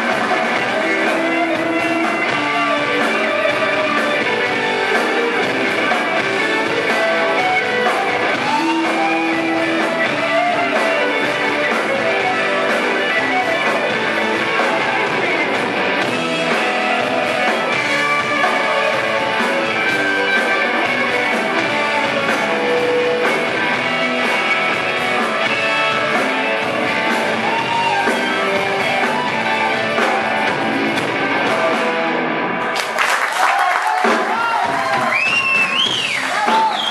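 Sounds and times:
live rock band playing: 0.0s - 36.9s.

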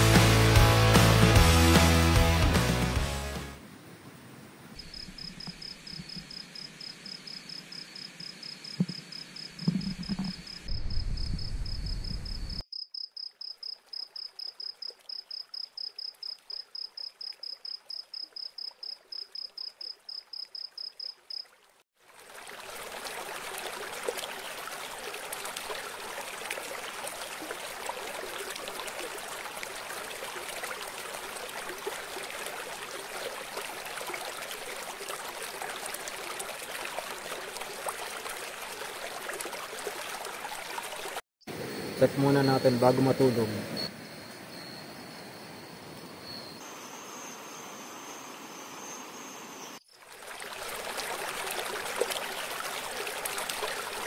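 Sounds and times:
cricket chirping: 4.8s - 21.5s, 41.5s - 49.9s
thumps: 8.8s - 9.0s, 9.6s - 10.5s
river flowing: 21.6s - 41.8s, 43.9s - 54.0s.

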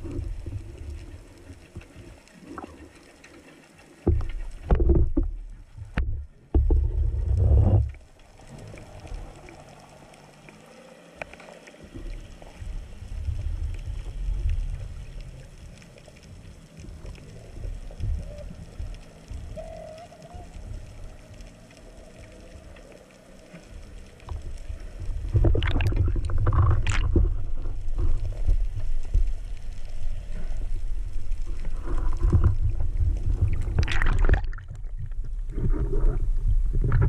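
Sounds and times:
low underwater rumble: 0.0s - 37.0s
underwater sloshing and rushing: 0.0s - 37.0s.

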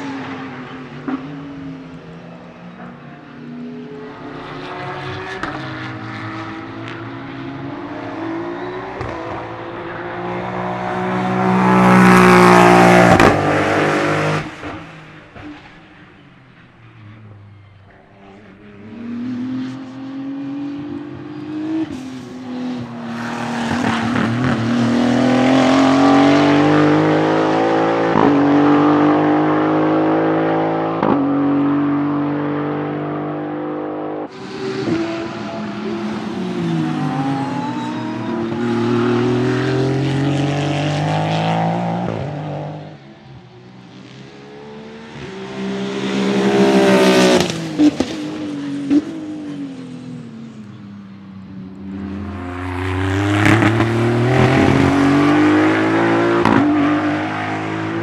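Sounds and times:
race car engine accelerating: 18.3s - 42.9s, 51.9s - 58.0s
car passing by: 44.8s - 50.4s.

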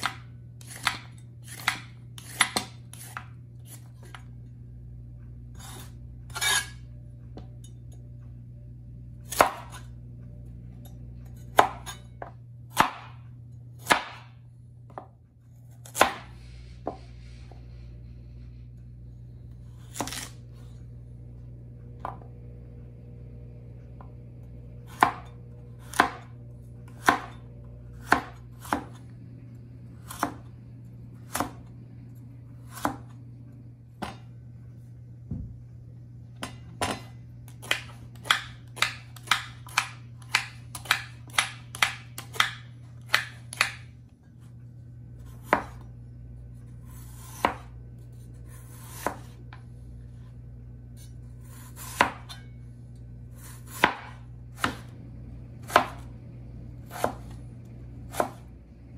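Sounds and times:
cleaver chopping on cutting board: 0.0s - 4.2s, 9.3s - 9.8s, 11.5s - 12.0s, 12.7s - 13.2s, 13.8s - 14.3s, 15.8s - 17.0s, 19.9s - 20.4s, 24.9s - 26.3s, 26.9s - 27.4s, 28.0s - 29.0s, 30.0s - 30.5s, 31.3s - 31.6s, 32.6s - 33.1s, 36.4s - 43.9s, 45.2s - 45.8s, 46.9s - 47.7s, 48.5s - 49.4s, 51.5s - 52.4s, 53.4s - 54.9s, 55.6s - 56.0s, 56.9s - 57.4s, 58.1s - 58.5s.

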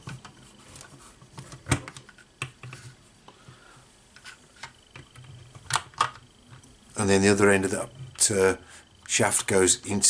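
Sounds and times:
plastic parts clicking and knocking: 0.0s - 3.5s, 4.1s - 6.7s.

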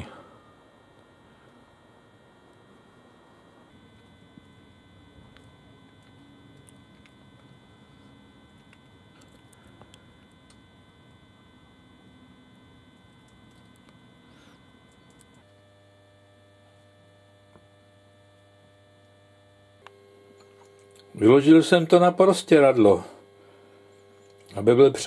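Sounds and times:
faint electrical hum: 0.0s - 25.0s
low mains hum: 0.0s - 25.0s.

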